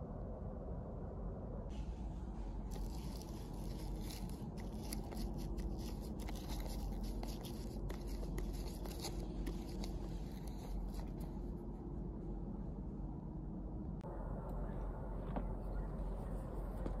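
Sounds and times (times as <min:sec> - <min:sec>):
low steady rumble: 0:00.0 - 0:17.0
stick scratching on tree bark: 0:02.7 - 0:11.4.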